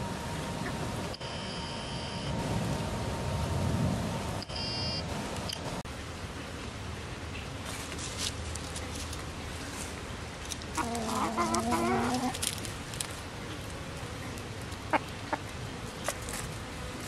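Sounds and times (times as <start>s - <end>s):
chicken calling: 10.8s - 12.4s, 14.9s - 15.5s.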